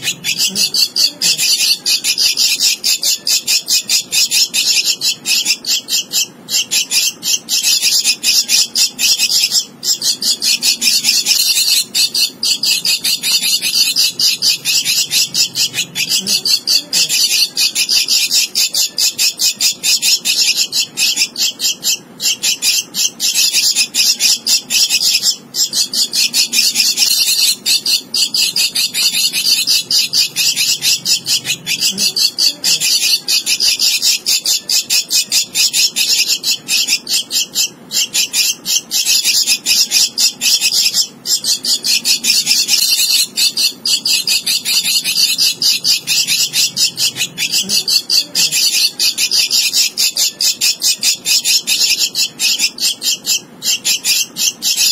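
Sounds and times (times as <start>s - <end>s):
bird nestling harsh chirping: 0.0s - 54.9s.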